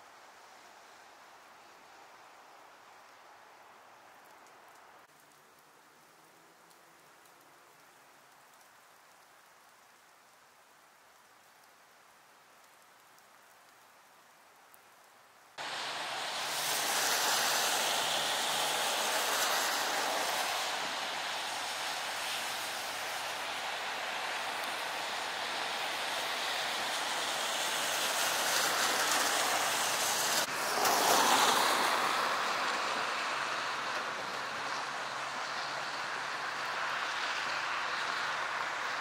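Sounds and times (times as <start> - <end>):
faint outdoor hiss: 0.0 - 39.0
tyres swishing through slush: 15.6 - 39.0.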